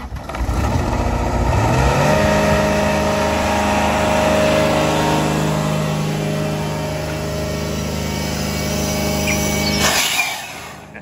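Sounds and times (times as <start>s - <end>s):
diesel engine starting up: 0.0s - 11.0s.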